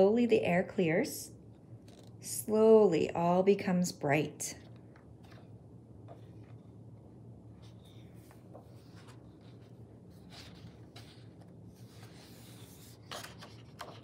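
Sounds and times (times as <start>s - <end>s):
low room hum: 0.0s - 14.0s
page flips: 1.8s - 2.2s, 7.6s - 14.0s
book pages rubbing and sliding: 6.1s - 14.0s.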